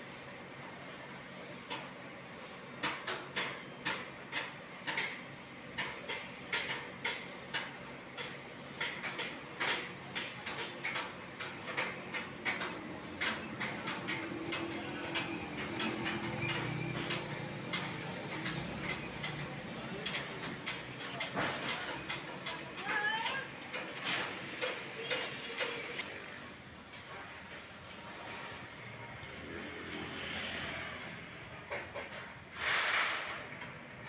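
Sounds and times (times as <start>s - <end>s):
low engine rumble: 11.1s - 32.6s.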